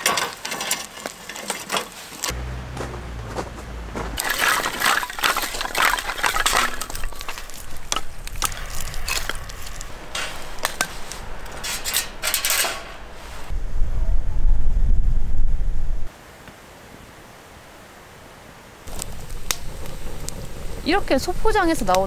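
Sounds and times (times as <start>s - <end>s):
crackling and crinkling: 0.0s - 13.5s
wind buffeting microphone: 2.3s - 16.1s, 18.9s - 22.0s.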